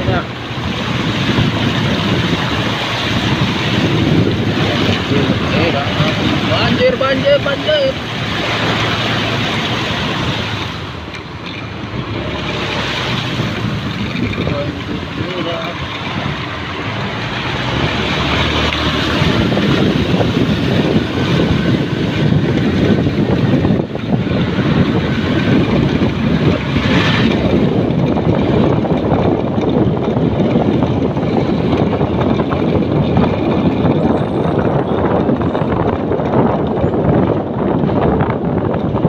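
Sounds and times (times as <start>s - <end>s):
water spray from tyres: 0.0s - 31.8s
motorcycle engine running: 0.0s - 39.0s
wind noise on microphone: 0.0s - 39.0s.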